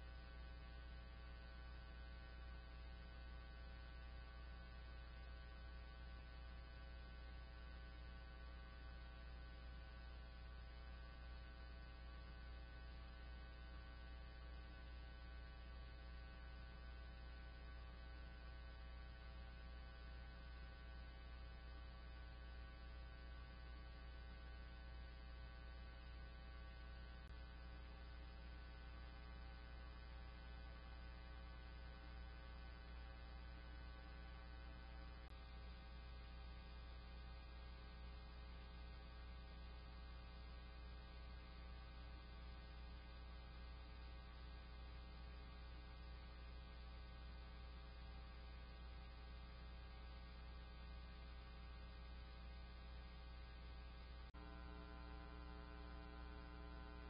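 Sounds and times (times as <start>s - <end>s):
electrical hum: 38.6s - 57.0s.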